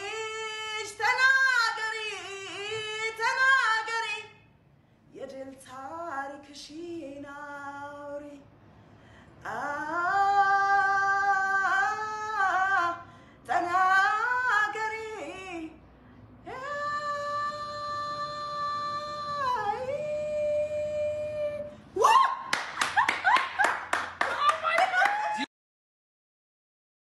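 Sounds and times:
woman singing unaccompanied: 0:00.0 - 0:04.4, 0:05.1 - 0:08.5, 0:09.4 - 0:15.8, 0:16.4 - 0:21.8
sharp hand claps: 0:22.5 - 0:25.3
woman laughing: 0:22.8 - 0:25.5.

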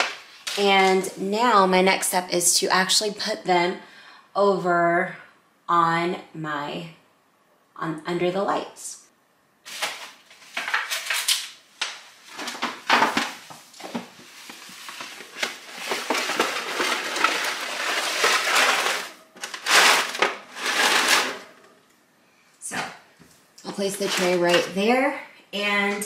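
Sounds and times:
aluminium tray rustling and crinkling: 0:12.2 - 0:21.6, 0:23.8 - 0:24.8
tray scraping on wire shelf: 0:15.0 - 0:21.7, 0:23.9 - 0:24.8.

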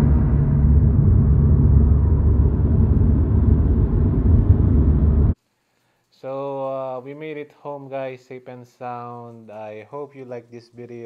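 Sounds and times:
car engine and road noise: 0:00.0 - 0:05.4.

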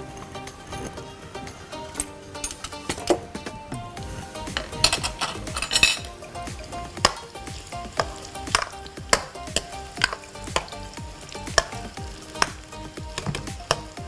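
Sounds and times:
spatula scraping and knocking pan: 0:00.0 - 0:06.1
meat sizzling in oil: 0:04.0 - 0:14.0.

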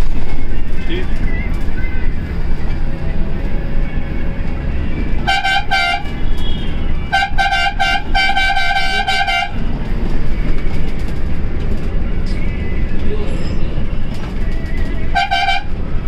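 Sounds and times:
engine and road rumble: 0:00.0 - 0:16.0
bus horn tooting: 0:05.2 - 0:09.8, 0:15.0 - 0:15.8.

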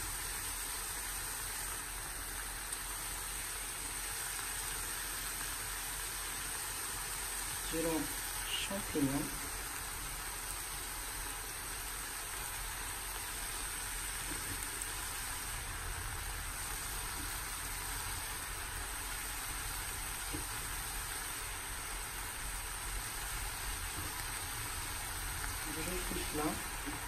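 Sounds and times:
food sizzling in a frying pan: 0:00.0 - 0:27.0.

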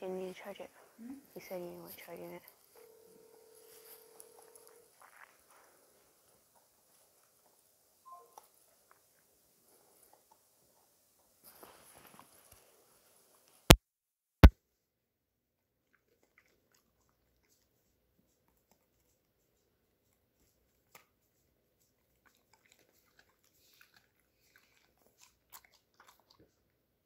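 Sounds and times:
dog crunching carrot: 0:15.8 - 0:19.2, 0:20.1 - 0:26.7.

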